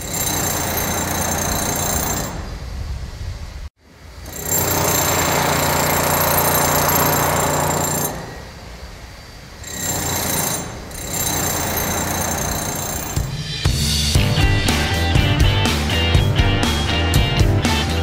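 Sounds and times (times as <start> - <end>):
construction machinery rattling: 0.0 - 2.5, 4.3 - 8.7, 9.5 - 13.3
music: 13.2 - 18.0.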